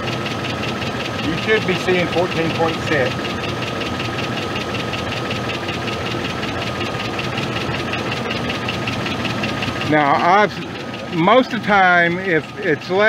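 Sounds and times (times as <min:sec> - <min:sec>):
fast even ticking: 0:00.0 - 0:13.0
truck engine idling: 0:00.0 - 0:13.0.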